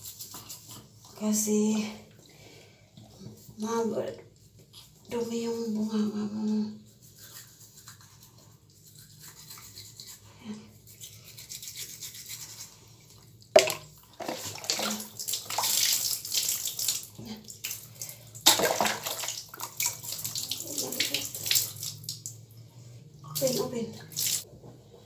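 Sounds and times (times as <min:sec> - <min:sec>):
toothbrush scrubbing teeth: 0:00.0 - 0:01.5, 0:04.2 - 0:13.5, 0:19.7 - 0:22.3
water splashing and sloshing: 0:13.5 - 0:24.5.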